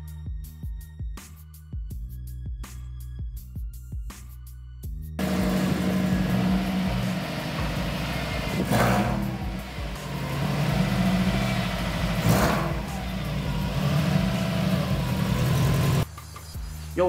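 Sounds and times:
background music: 0.0 - 17.0
car engine running: 5.2 - 16.0.

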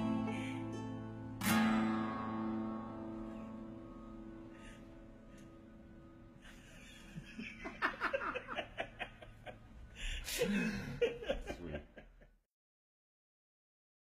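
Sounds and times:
people laughing: 6.4 - 12.4.

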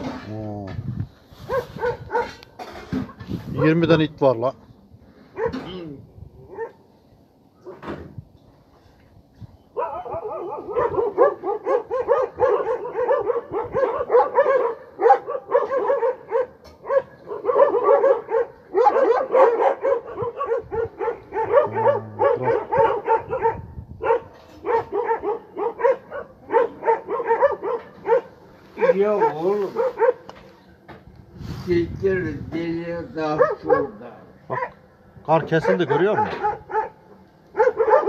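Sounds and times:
dogs barking: 1.4 - 2.6, 5.3 - 5.7, 6.5 - 6.8, 9.7 - 30.5, 33.2 - 38.0.

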